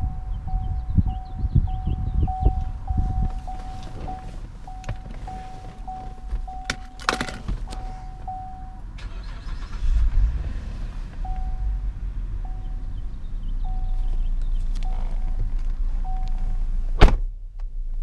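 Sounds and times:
car warning chime pulsing: 0.0s - 9.7s, 11.2s - 11.8s, 12.4s - 12.9s, 13.6s - 14.2s, 16.0s - 16.6s
low rumble: 0.0s - 18.0s.

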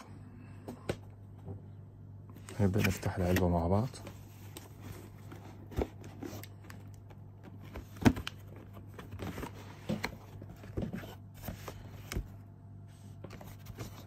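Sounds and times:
packaging and case being handled: 2.4s - 12.4s.

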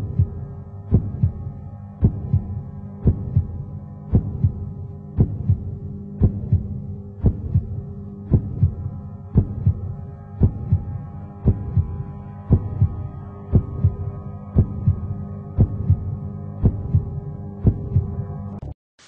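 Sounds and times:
droning hum: 0.0s - 18.7s
heartbeat-like double thump: 5.2s - 8.8s.

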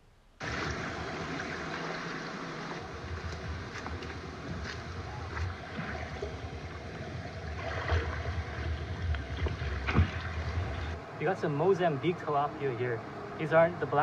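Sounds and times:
wading through stream water: 0.4s - 11.0s
small splashes and knocks: 7.5s - 10.9s.

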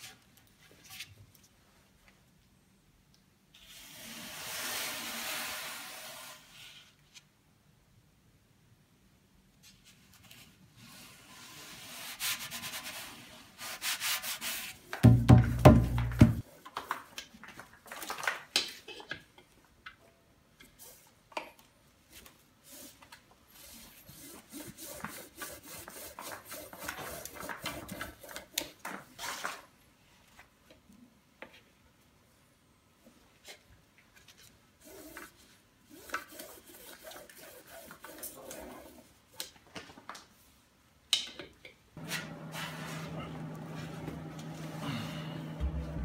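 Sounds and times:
scratchy rubbing on drum ropes: 22.7s - 28.6s, 34.8s - 39.1s.

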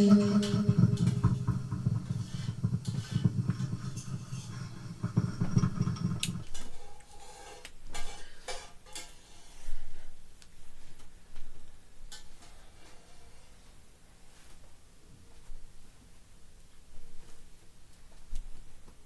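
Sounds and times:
low buzzing hum: 0.0s - 6.6s.

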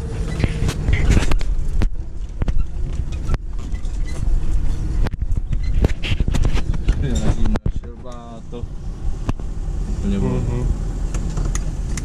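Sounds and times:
car body rattling over bumps: 0.0s - 9.7s
car engine running low: 0.0s - 12.0s.

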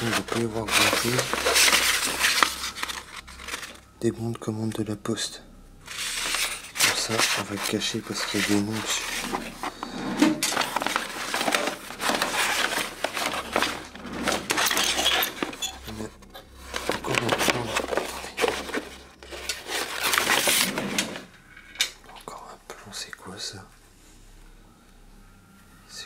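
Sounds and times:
stiff paper rustling: 0.0s - 3.8s, 5.9s - 16.0s, 16.6s - 21.3s.

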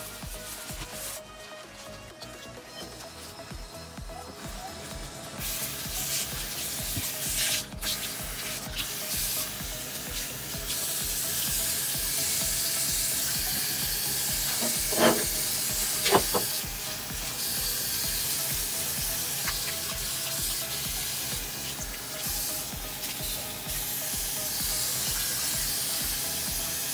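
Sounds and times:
tap water running into a sink: 5.4s - 26.9s.

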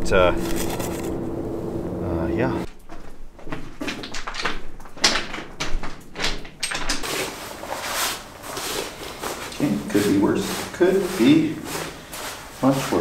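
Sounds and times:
rustling of fabric and gear: 7.0s - 13.0s.

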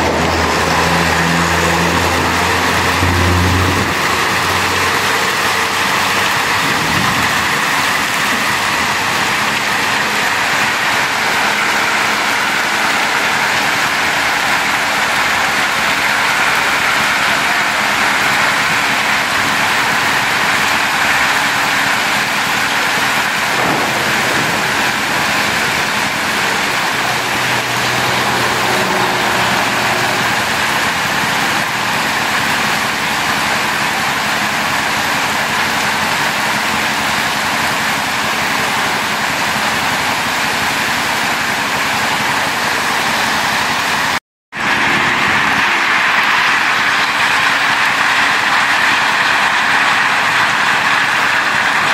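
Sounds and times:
heavy rain and hail on pavement: 1.8s - 44.2s, 45.0s - 51.9s.

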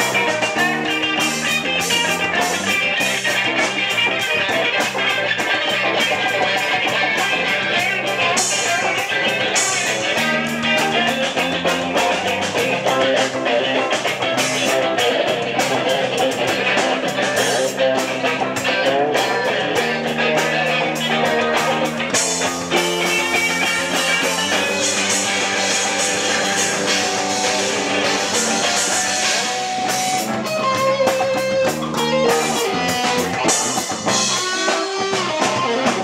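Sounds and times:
bass guitar: 0.0s - 36.0s
electric guitars: 0.0s - 36.0s
drum kit hits: 16.5s - 36.0s.

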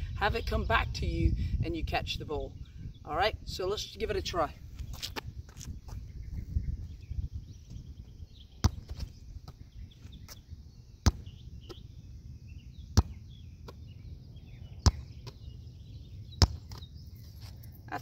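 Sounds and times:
ball smacking concrete curb: 14.8s - 15.4s, 16.4s - 16.9s.

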